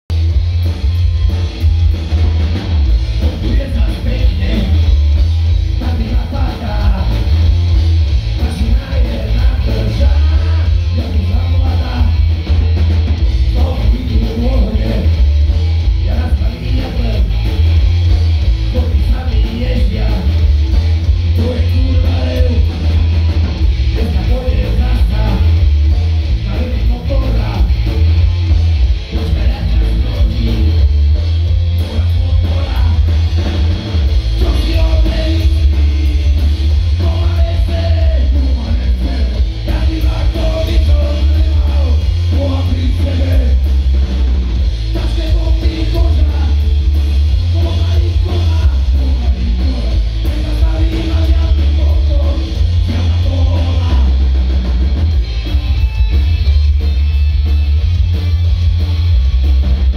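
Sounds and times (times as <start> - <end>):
live rock band playing: 0.1 - 59.9
man singing: 3.2 - 5.1, 5.8 - 7.4, 8.4 - 12.3, 13.5 - 15.4, 16.0 - 17.5, 18.7 - 20.6, 21.4 - 22.9, 24.0 - 25.7, 26.4 - 27.9, 29.1 - 31.0, 31.8 - 33.2, 34.3 - 43.8, 44.9 - 54.3.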